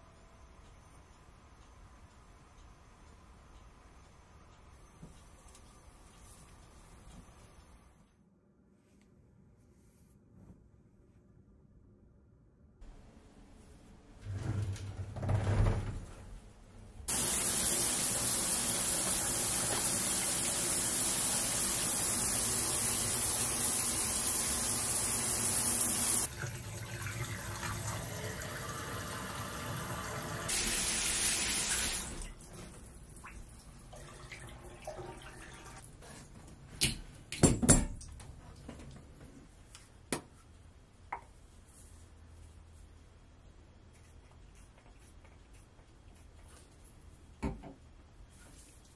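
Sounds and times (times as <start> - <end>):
shower water spraying: 17.1 - 26.3, 28.2 - 32.2.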